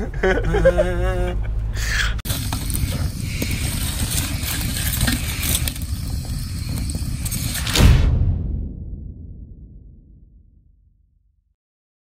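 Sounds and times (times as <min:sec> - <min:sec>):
low rumble: 0:00.0 - 0:11.5
wood fire crackling: 0:02.2 - 0:08.0
loud deep boom: 0:07.6 - 0:11.5.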